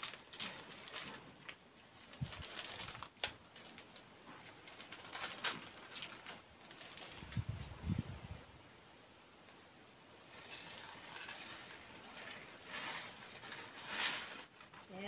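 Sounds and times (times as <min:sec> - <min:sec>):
plastic packet crinkling: 0:00.0 - 0:07.6.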